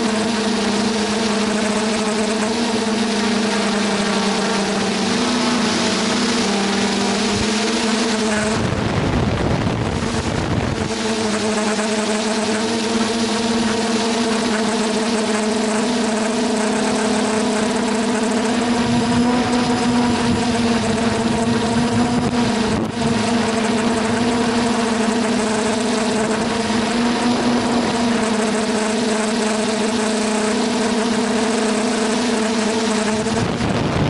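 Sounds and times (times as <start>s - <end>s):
drone motors humming: 0.0s - 34.0s
rush of air: 5.5s - 11.0s.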